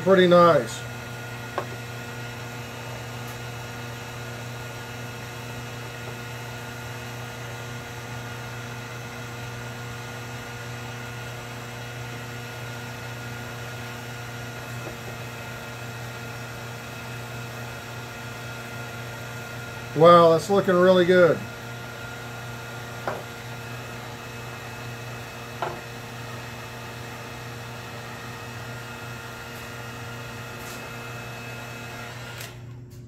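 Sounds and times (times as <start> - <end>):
heat gun humming: 0.0 - 33.0.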